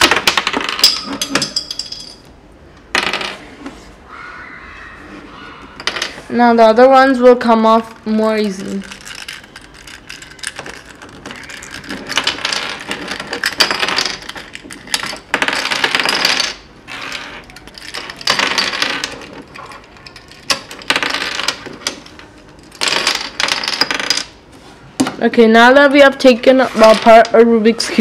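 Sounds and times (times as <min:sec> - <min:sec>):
plastic cube pieces clicking and rattling: 0:08.6 - 0:16.4.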